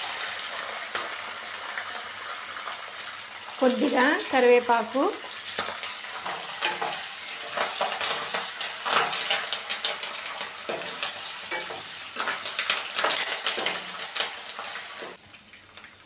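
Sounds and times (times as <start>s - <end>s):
food sizzling in hot oil: 0.0s - 16.0s
ladle scraping and knocking pan: 10.7s - 14.2s.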